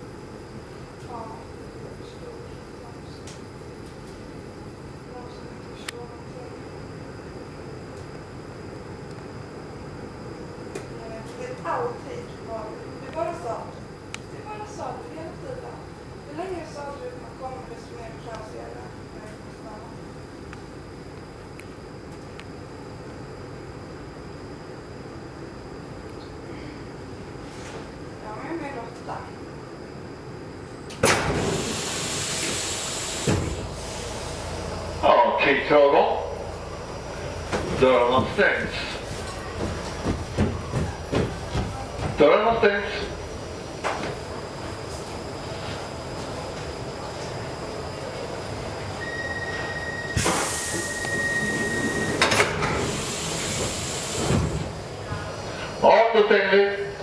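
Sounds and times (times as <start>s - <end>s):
subway car rumble and hum: 0.0s - 57.0s
loud pneumatic hiss: 31.0s - 34.8s, 50.1s - 54.7s
faint high whine: 41.7s - 54.6s
steady high door beep: 49.0s - 52.4s.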